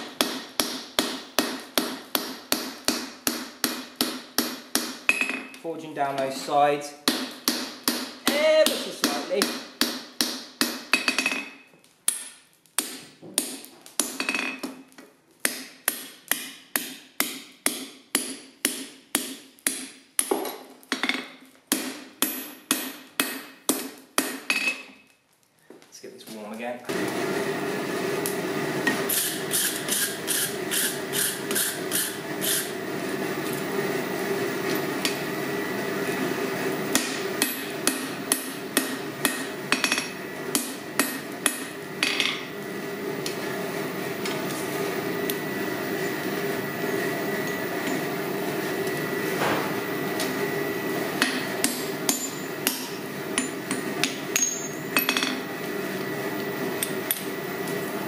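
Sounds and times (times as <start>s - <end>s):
hammer striking steel on anvil: 0.0s - 5.6s, 7.0s - 14.8s, 15.4s - 25.0s, 36.9s - 42.5s, 51.2s - 55.4s.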